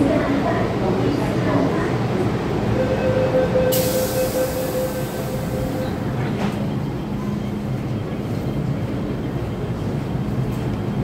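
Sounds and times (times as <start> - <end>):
electric train whine: 2.6 - 10.8.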